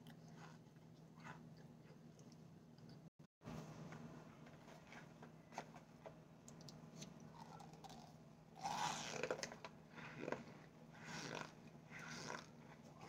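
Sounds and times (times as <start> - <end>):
crunchy chewing: 0.0 - 3.0, 7.0 - 13.0.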